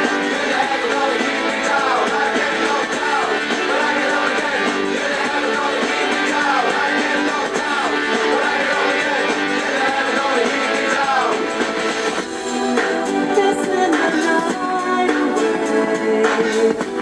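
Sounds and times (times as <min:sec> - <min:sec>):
guitar background music: 0:00.0 - 0:17.0.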